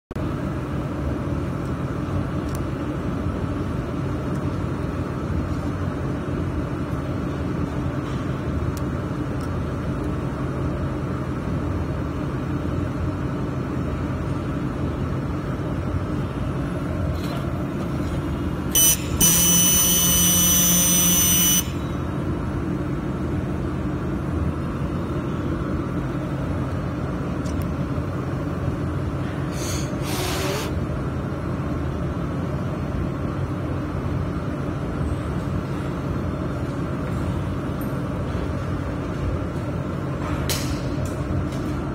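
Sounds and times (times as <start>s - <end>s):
machine hum: 0.2s - 40.3s
loud electronic buzz: 18.7s - 22.0s.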